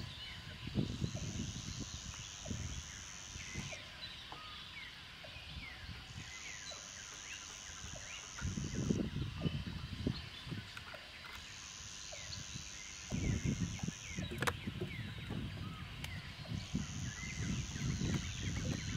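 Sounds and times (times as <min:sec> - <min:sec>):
birds calling and chirping: 0:00.0 - 0:18.9
high steady buzz: 0:06.9 - 0:09.2, 0:11.6 - 0:14.4, 0:16.5 - 0:18.9.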